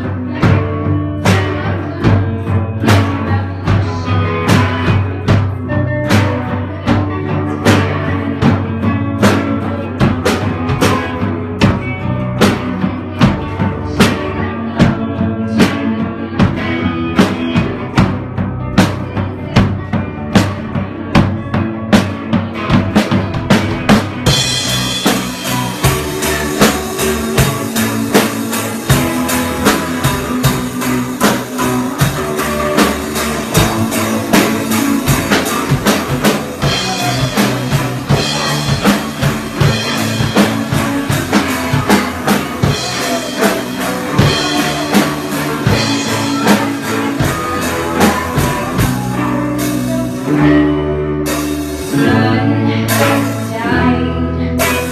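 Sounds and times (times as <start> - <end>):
drum kit kick and snare: 0.0 - 50.5
electric guitars: 0.0 - 54.9.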